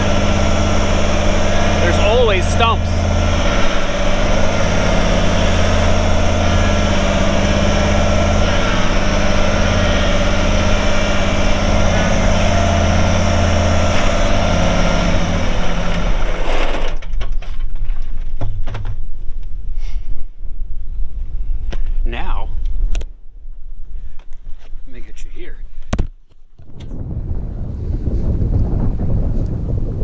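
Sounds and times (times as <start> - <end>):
tractor diesel engine running: 0.0 - 18.2.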